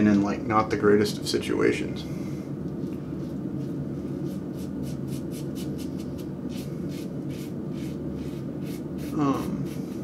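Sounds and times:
steady low hum: 0.0 - 10.0
razor scraping beard stubble: 3.6 - 10.0.

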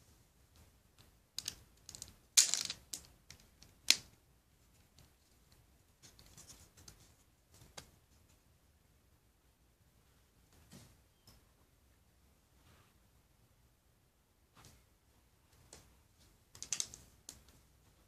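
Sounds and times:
plastic pieces clattering: 1.4 - 3.7
plastic pieces snapping together: 1.4 - 4.2, 16.6 - 17.5.

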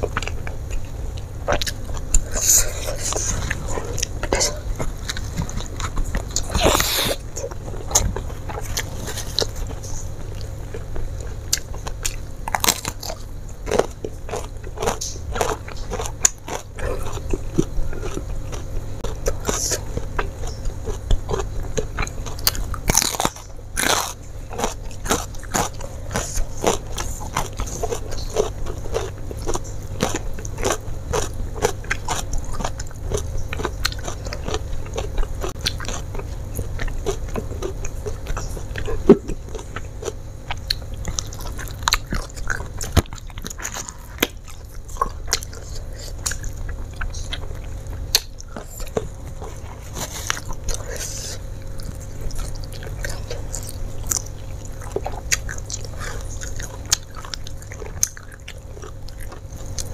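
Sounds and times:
chewing food: 0.0 - 59.9
crunching bites of raw vegetable: 1.5 - 10.5, 11.5 - 59.9
mouth sounds: 6.1 - 8.1.

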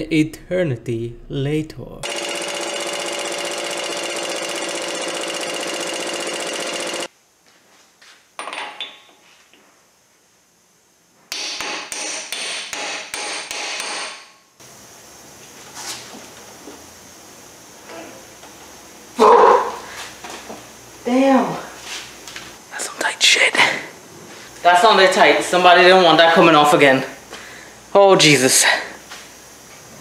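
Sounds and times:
impact wrench hammering: 2.0 - 7.1, 11.3 - 14.3.

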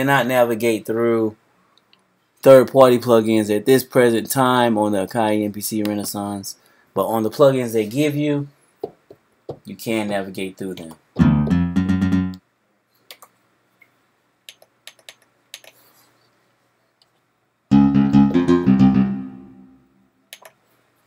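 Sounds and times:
plucked guitar notes: 11.2 - 12.4, 17.7 - 19.9.

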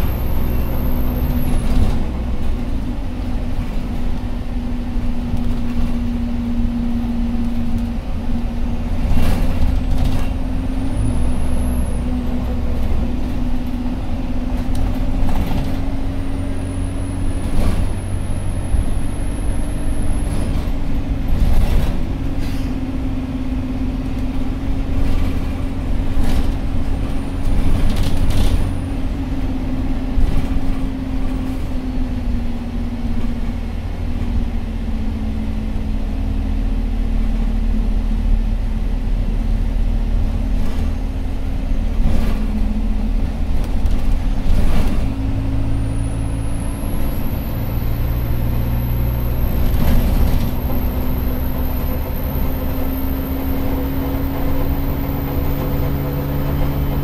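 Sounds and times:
bus engine drone: 0.0 - 57.0
bus body knocks and rattles: 8.8 - 10.6, 24.3 - 31.8, 40.4 - 45.4.

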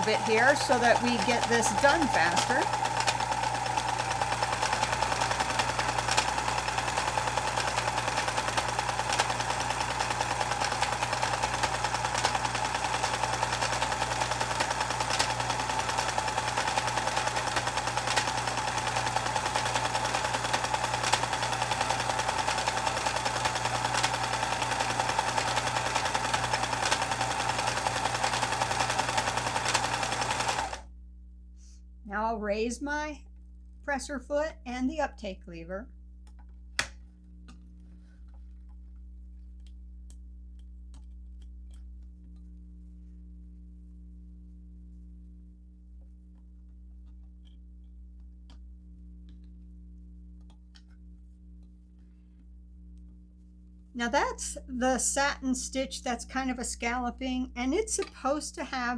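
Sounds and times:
sewing machine needle strokes: 0.0 - 30.8
sewing machine motor hum: 0.0 - 30.9.

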